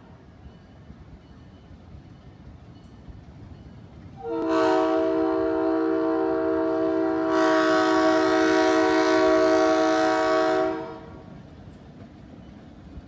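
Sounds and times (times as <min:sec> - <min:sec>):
locomotive air horn chord: 0:04.2 - 0:11.2.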